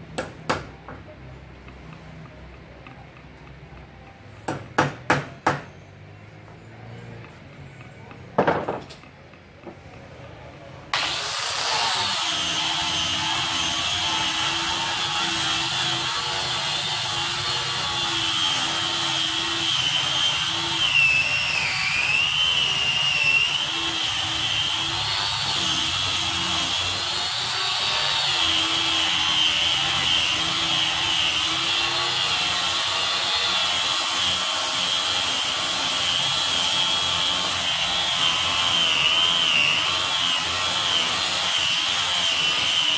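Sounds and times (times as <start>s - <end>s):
knock: 8.4s - 8.9s
electric hand sander whining: 10.9s - 42.9s.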